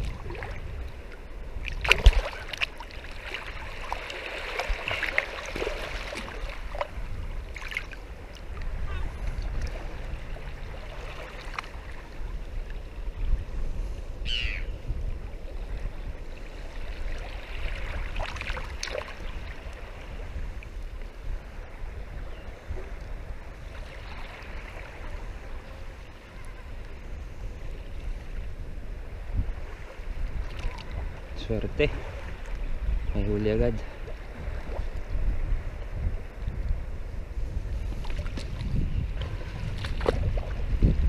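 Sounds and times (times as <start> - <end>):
water sloshing and splashing: 0.0 - 12.8, 16.4 - 20.0, 29.6 - 32.6, 37.9 - 41.0.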